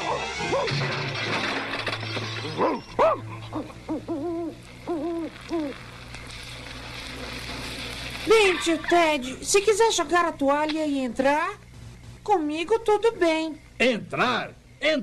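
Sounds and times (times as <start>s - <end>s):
cartoon owl hooting: 2.9s - 5.8s
hiss: 4.7s - 9.4s.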